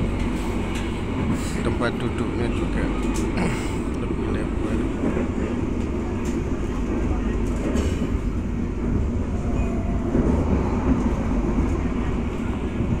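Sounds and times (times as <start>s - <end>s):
moving train rumble: 0.0s - 13.0s.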